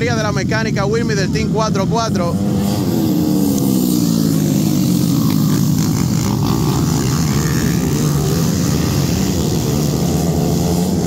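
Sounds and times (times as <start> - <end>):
racing motorcycles passing: 0.0 - 11.0.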